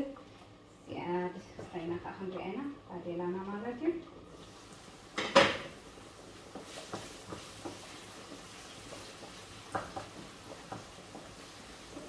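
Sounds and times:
food frying in a pan: 3.4 - 12.0
spatula knocking and scraping pan: 6.5 - 12.0.

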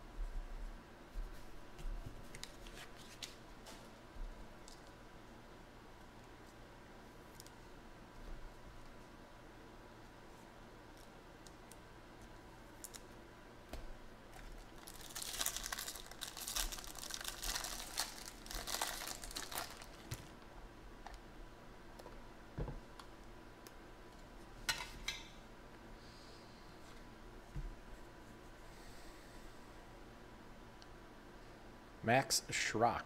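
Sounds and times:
foil wrapper crinkling: 14.3 - 20.4.

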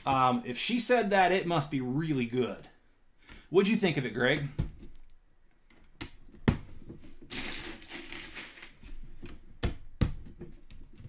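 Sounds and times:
plastic rattling and rustling: 6.8 - 9.4.

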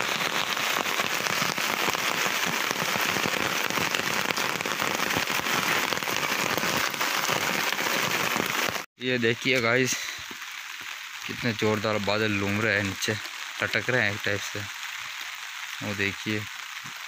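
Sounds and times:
heavy rain falling: 0.0 - 17.0.

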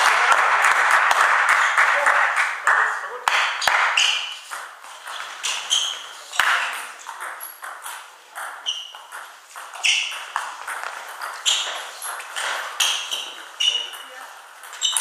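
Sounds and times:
table tennis ball rally: 0.0 - 15.0.

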